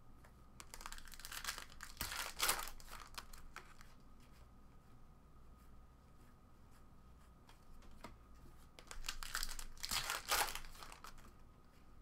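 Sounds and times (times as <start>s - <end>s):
foil wrapper tearing and crinkling: 0.6s - 3.6s, 8.8s - 11.2s.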